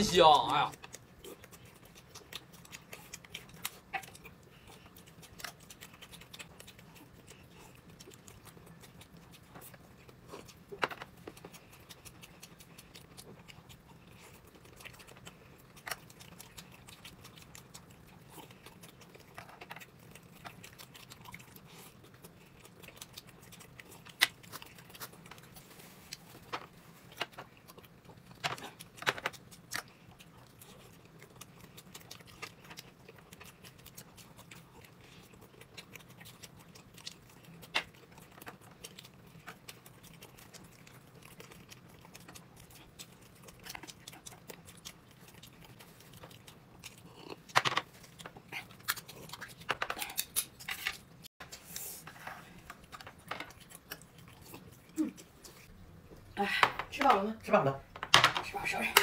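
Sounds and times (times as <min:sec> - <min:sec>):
person chewing: 0:00.0 - 0:56.8
faint steady hum: 0:00.0 - 0:59.0.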